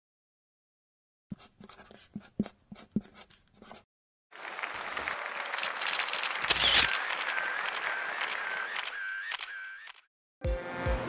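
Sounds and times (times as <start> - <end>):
marker pen scratching: 1.3 - 3.9
rapid camera shutter clicks: 5.5 - 10.1.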